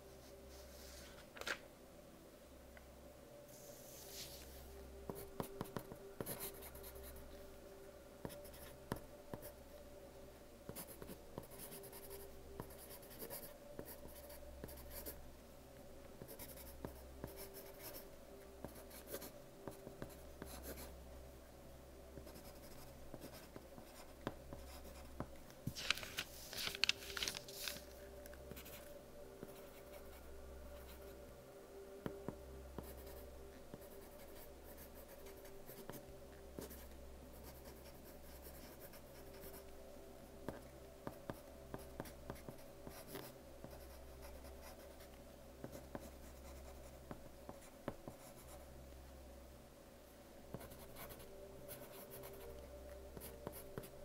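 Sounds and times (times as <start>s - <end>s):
pencil writing on paper: 10.7s - 15.2s, 16.2s - 18.0s, 33.7s - 36.0s, 36.6s - 39.4s, 40.5s - 43.8s, 50.5s - 52.5s.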